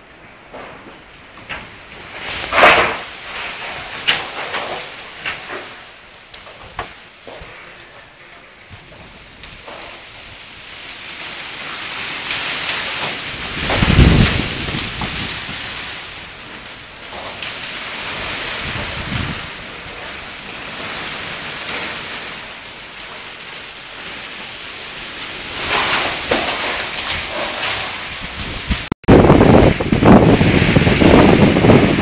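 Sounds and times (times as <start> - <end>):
gusty wind through trees: 0.0 - 32.0
leaves and branches hissing: 0.6 - 32.0
wind buffeting the microphone: 13.2 - 17.0, 18.0 - 20.0, 25.5 - 32.0.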